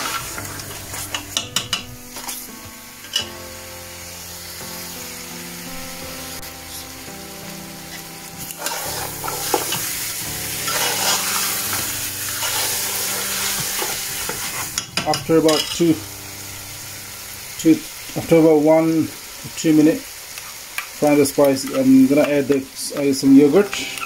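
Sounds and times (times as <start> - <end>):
meat and spices sizzling in oil: 0.0 - 24.0
metal spoon scraping a pot: 10.6 - 11.2.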